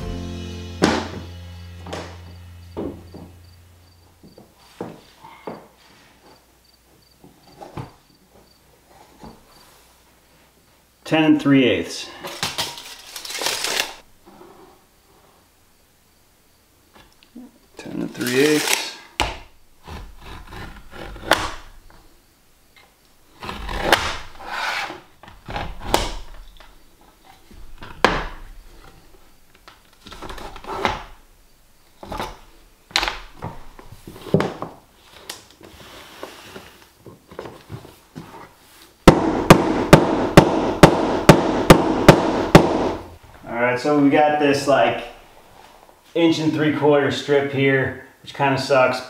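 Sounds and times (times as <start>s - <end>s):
rubber mallet tapping planks: 39.0s - 43.1s.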